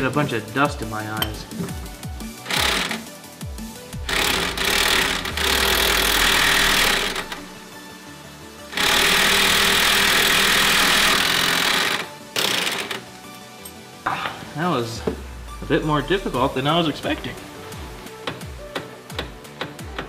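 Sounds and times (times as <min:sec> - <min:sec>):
impact wrench hammering: 0:02.5 - 0:03.0, 0:04.0 - 0:07.5, 0:08.8 - 0:13.0.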